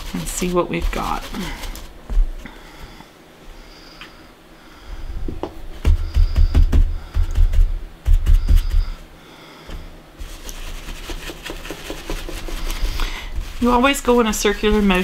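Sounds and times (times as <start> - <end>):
soft brush scrubbing: 0.0 - 2.6, 9.8 - 15.0
stencil brush tapping on paper: 11.1 - 12.7.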